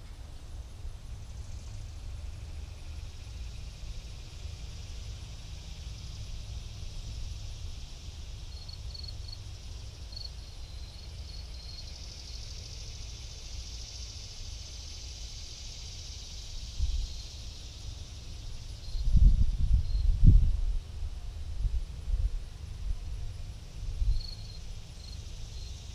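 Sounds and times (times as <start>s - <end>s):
steady high hiss: 0.0s - 25.9s
wind buffeting microphone: 18.8s - 20.9s.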